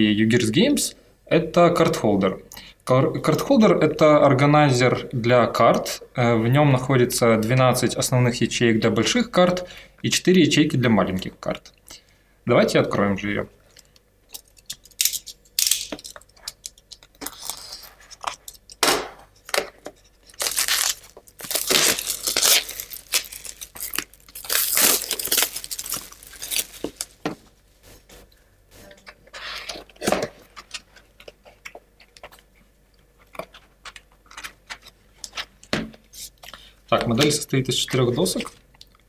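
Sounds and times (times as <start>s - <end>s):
plastic bag rustling: 20.2s - 28.1s.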